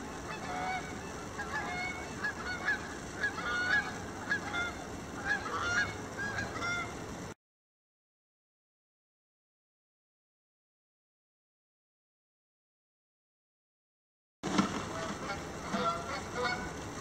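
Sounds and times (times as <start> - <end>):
geese honking: 0.0 - 7.0, 14.4 - 17.0.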